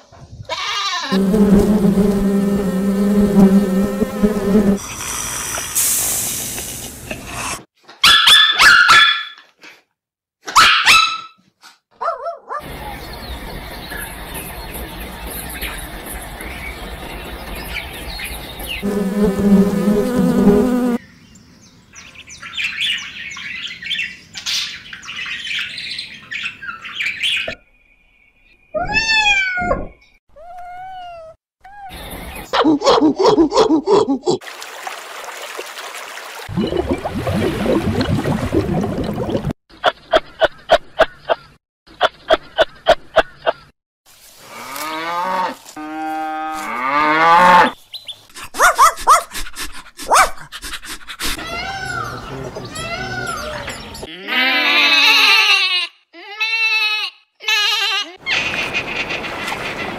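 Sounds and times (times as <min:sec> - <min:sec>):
snake hissing: 0:01.2 - 0:07.7
dog barking: 0:08.0 - 0:09.4, 0:10.5 - 0:11.4, 0:12.0 - 0:12.7, 0:32.5 - 0:34.0, 0:48.5 - 0:49.4, 0:50.0 - 0:50.5
cat meowing: 0:28.8 - 0:29.8.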